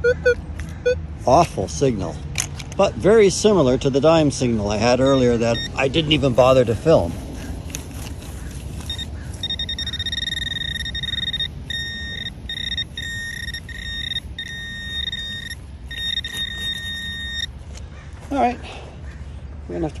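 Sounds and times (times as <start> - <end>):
high electronic beep: 0.0 - 1.0, 5.1 - 5.8, 8.9 - 17.5.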